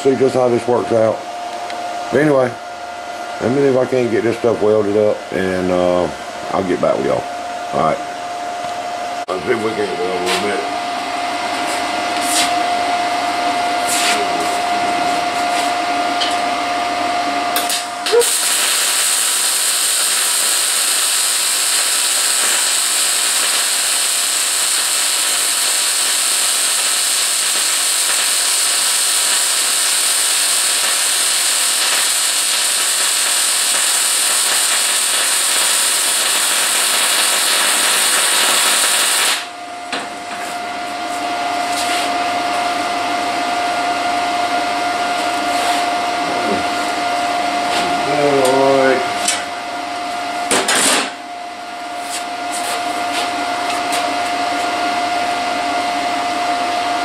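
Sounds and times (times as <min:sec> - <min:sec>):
shop hum with high tone: 0:00.0 - 0:57.0
arc welding hiss: 0:18.1 - 0:39.5.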